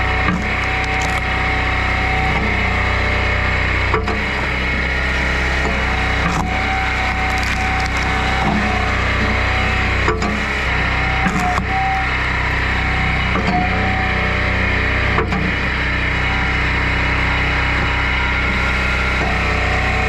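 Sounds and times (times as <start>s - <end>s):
tractor engine whining: 0.0s - 20.0s
wood cracking and splintering: 0.2s - 1.6s, 5.5s - 10.6s, 11.2s - 11.7s
sharp wood snaps: 0.3s - 1.3s, 6.2s - 8.5s.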